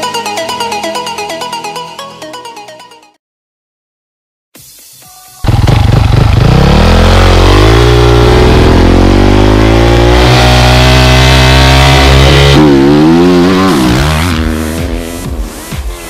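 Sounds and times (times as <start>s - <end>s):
motocross bike engine revving: 5.5s - 15.7s.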